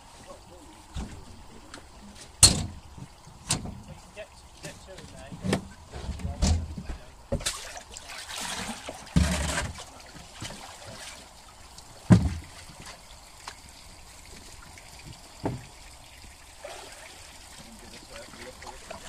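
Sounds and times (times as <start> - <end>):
water splashing in tank: 0.0 - 19.0
plastic bin knocks and thumps: 12.1 - 12.5.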